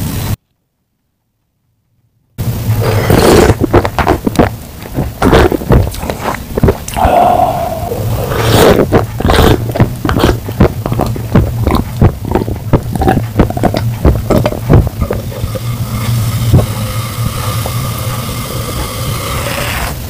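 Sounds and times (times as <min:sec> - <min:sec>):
man gulping soda: 0:05.2 - 0:17.8.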